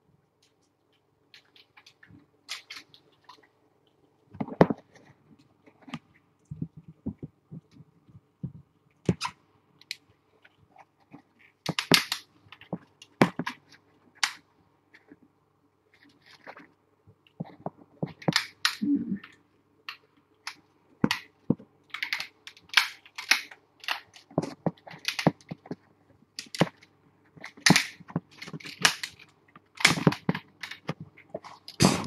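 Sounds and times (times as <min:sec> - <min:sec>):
sharp clicks and cracks: 0:00.3 - 0:15.2, 0:15.9 - 0:32.0.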